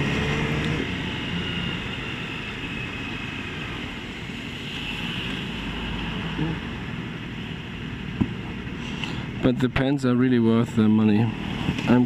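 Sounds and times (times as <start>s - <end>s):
motorcycle engine: 0.0s - 8.3s.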